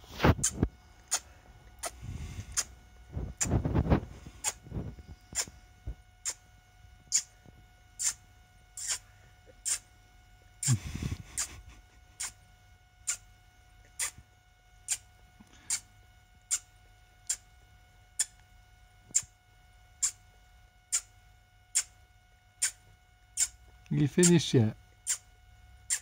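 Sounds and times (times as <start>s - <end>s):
toddler blowing kisses: 8.8s - 9.0s.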